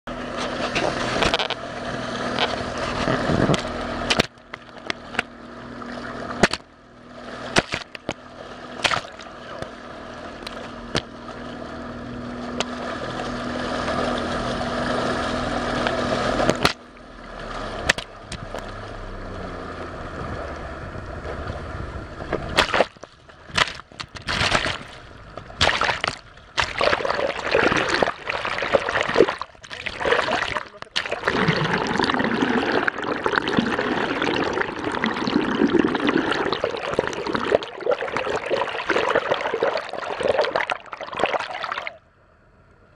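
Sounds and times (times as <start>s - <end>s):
water splashing and gurgling: 0.1s - 42.0s
muffled boat engine humming: 0.1s - 42.9s
rushing water and spray: 7.2s - 42.0s.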